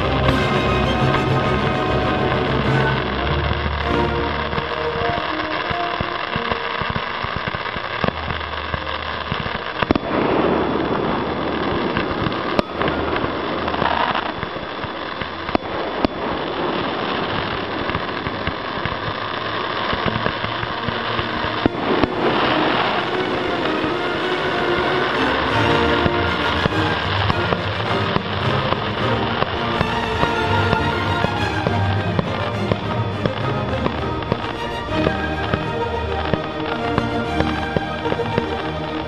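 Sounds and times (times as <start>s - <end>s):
music: 0.0s - 9.8s, 11.7s - 15.8s, 20.2s - 39.0s
crackling hissing fountains: 0.0s - 39.0s.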